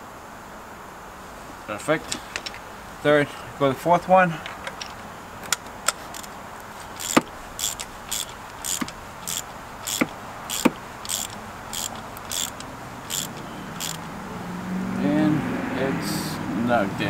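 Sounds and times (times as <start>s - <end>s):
ratchet clicking: 4.7s - 14.1s
sharp metal knocks: 7.0s - 14.0s.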